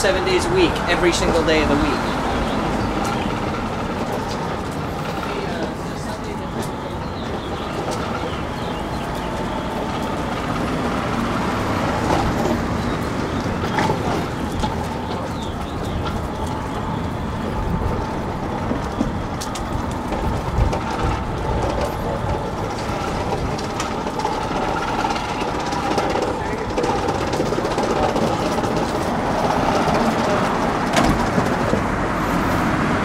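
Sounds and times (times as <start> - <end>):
traffic rumble: 0.0 - 33.0.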